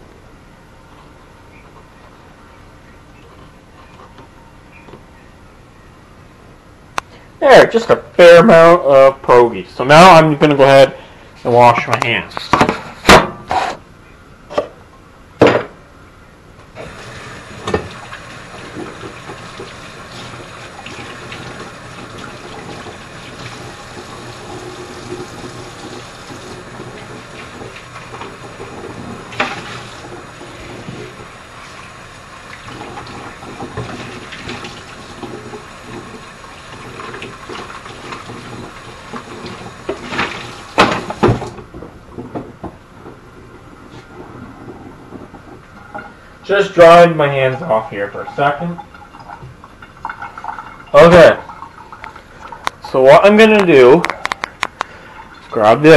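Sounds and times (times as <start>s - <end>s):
tap water running: 16.8s - 55.9s
knocks and clatters in sink: 17.6s - 31.3s, 32.7s - 43.6s.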